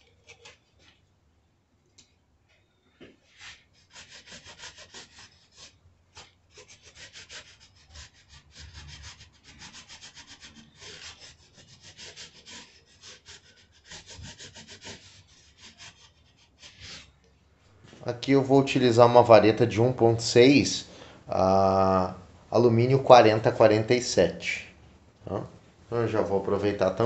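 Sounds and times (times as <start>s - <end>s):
abrasive strip rasping on metal tube: 0.0s - 0.8s, 3.3s - 17.2s.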